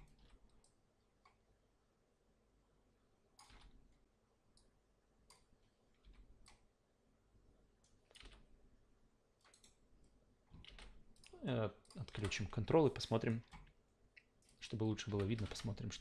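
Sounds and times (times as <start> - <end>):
computer mouse clicks: 3.4 - 3.8, 4.5 - 6.7, 9.4 - 12.4.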